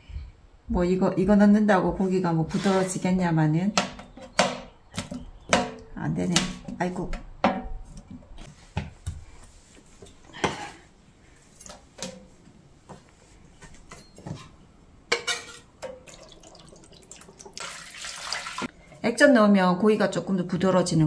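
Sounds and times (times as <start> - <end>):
utensils knocking in metal pan: 3.8 - 6.7.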